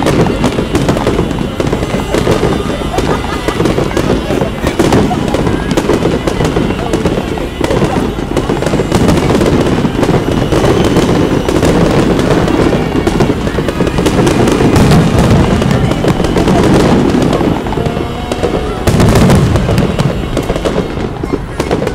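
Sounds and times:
fireworks booms and crackles: 0:00.0 - 0:21.9.

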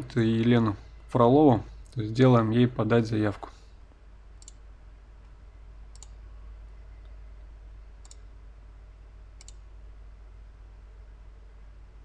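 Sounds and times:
faint low hum: 0:00.0 - 0:12.0
computer mouse clicking: 0:04.4 - 0:04.6, 0:05.9 - 0:06.2, 0:08.0 - 0:08.3, 0:09.4 - 0:09.6.

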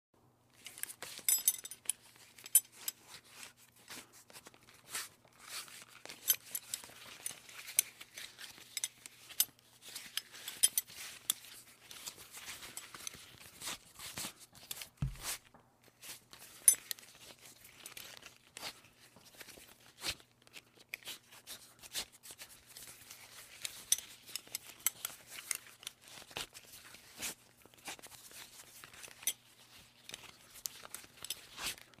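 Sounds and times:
belt strap rustling: 0:00.5 - 0:32.0
metal buckle clicking: 0:00.6 - 0:03.0.

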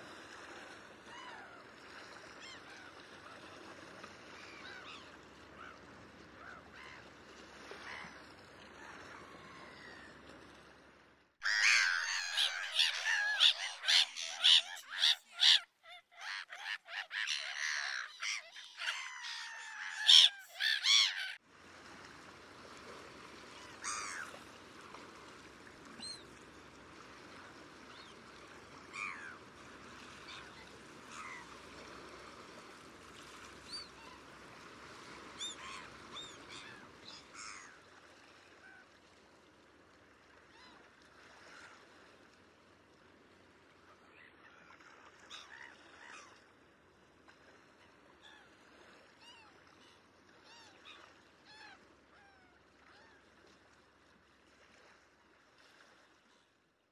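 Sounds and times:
gulls calling harshly: 0:11.4 - 0:21.4, 0:23.6 - 0:24.4, 0:28.8 - 0:31.7.

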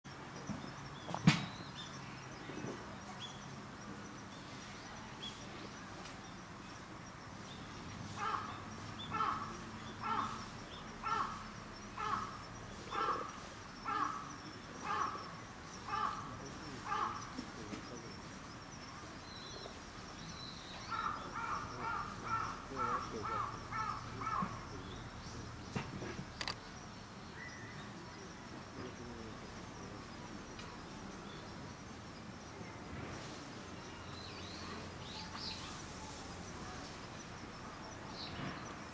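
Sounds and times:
crow cawing: 0:08.2 - 0:10.4, 0:11.0 - 0:15.3, 0:15.9 - 0:17.3, 0:20.9 - 0:24.6.

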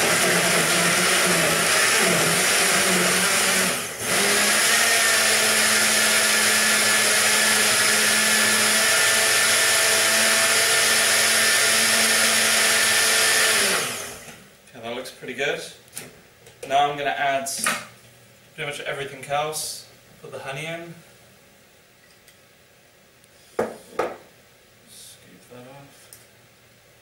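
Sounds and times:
blender running: 0:00.0 - 0:14.4.

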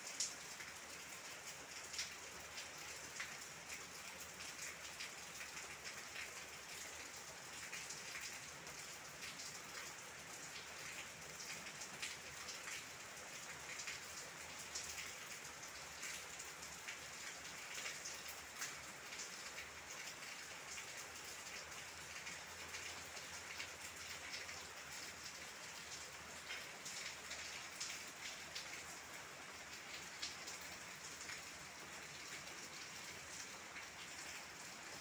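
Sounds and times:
rain falling on leaves: 0:00.0 - 0:35.0.

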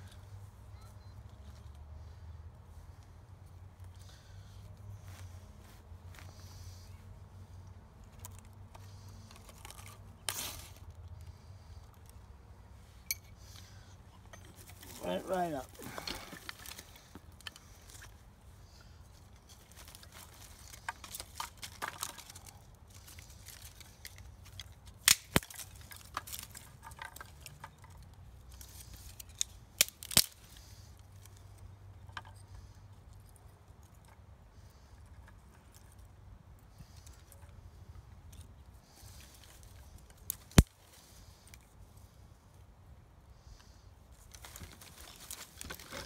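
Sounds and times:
wooden sticks snapping: 0:20.7 - 0:28.1, 0:29.0 - 0:30.5.

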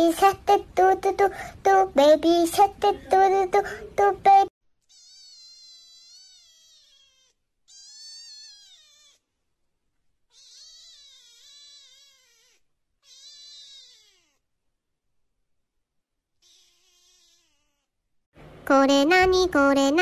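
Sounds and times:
kitten meowing: 0:04.8 - 0:09.3, 0:10.3 - 0:14.4, 0:16.4 - 0:17.9.

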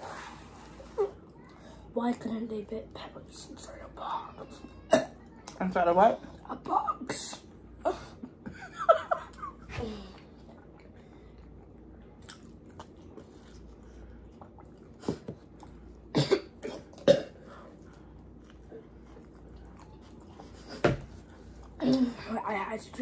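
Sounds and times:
chewing: 0:10.1 - 0:21.9
person coughing: 0:16.1 - 0:17.4.

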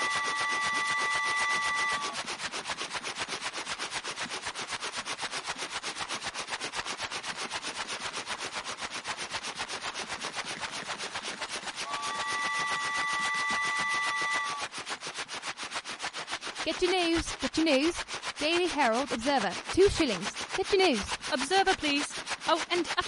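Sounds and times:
train whistle: 0:00.0 - 0:02.2, 0:11.8 - 0:14.7.

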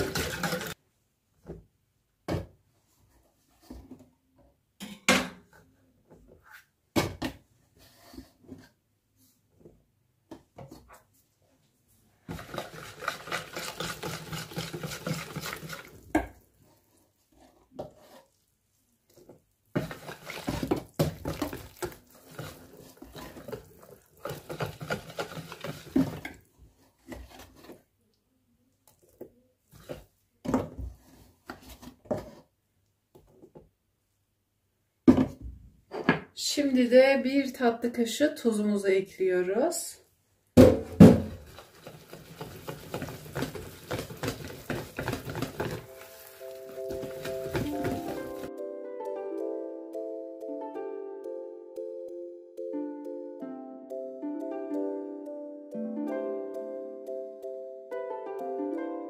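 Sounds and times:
metal whisk scraping a bowl: 0:00.0 - 0:00.8, 0:12.3 - 0:16.0, 0:19.8 - 0:20.7, 0:21.3 - 0:26.3.

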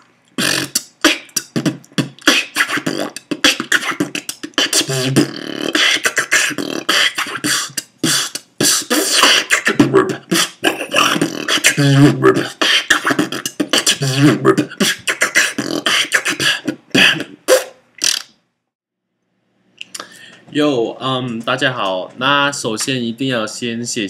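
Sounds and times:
person beatboxing: 0:00.4 - 0:18.2.

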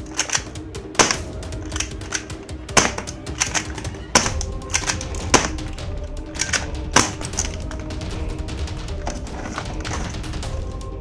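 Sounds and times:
plastic toy pistols clicking: 0:00.0 - 0:07.8
background music: 0:00.0 - 0:11.0.

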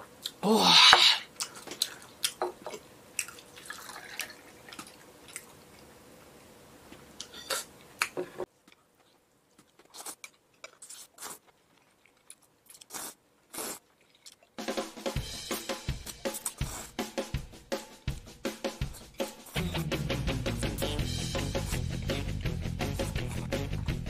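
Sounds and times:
slurping and chewing noodles: 0:01.1 - 0:06.0, 0:09.6 - 0:14.6, 0:15.4 - 0:17.2, 0:18.8 - 0:24.0.

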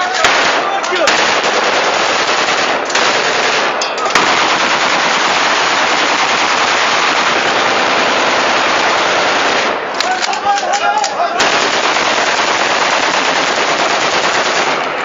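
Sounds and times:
automatic gunfire: 0:00.0 - 0:10.4, 0:11.4 - 0:15.0.

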